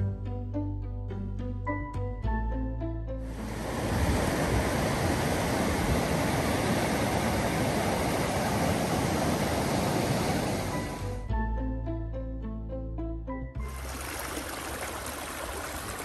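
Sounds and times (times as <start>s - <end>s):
stream rushing over rocks: 3.3s - 11.1s, 13.7s - 16.0s.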